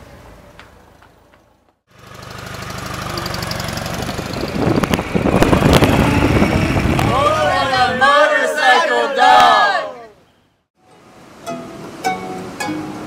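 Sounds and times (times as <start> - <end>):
motorcycle engine running: 1.9 - 7.5.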